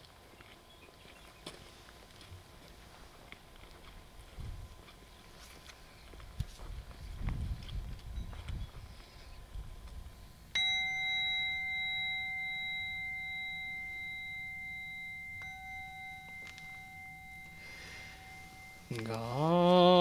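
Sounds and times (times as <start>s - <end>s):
bowl bell ringing: 10.5s - 19.6s
man chanting: 18.9s - 20.0s.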